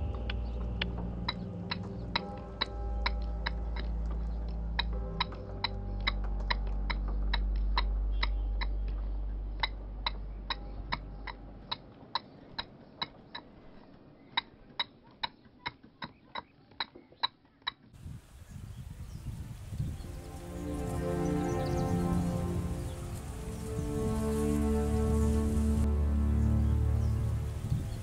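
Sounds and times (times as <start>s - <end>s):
low steady hum: 0.0s - 12.9s, 19.2s - 28.0s.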